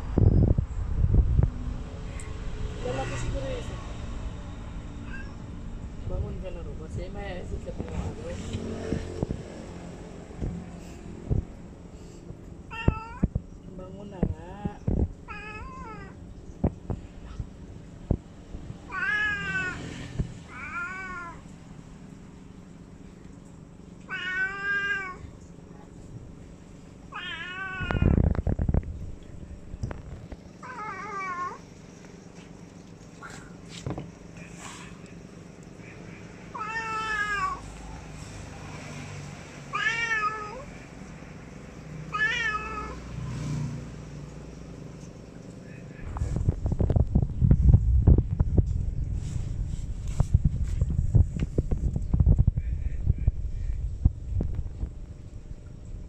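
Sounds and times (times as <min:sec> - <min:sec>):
cat meowing: 0:05.0 - 0:05.4, 0:12.7 - 0:13.3, 0:15.3 - 0:16.2, 0:18.9 - 0:21.4, 0:24.1 - 0:25.2, 0:27.1 - 0:28.3, 0:30.6 - 0:31.6, 0:36.5 - 0:37.7, 0:39.7 - 0:40.7, 0:42.1 - 0:43.0.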